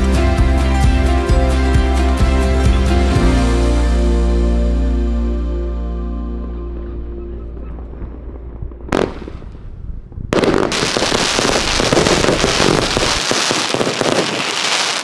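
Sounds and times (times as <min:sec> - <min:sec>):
fireworks bangs and crackling: 0:07.5 - 0:15.0.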